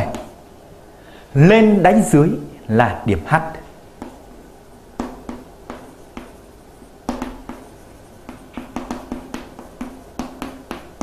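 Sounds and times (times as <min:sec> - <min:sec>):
pen strokes and taps on paper: 0:00.0 - 0:00.4, 0:04.0 - 0:04.2, 0:05.0 - 0:11.0.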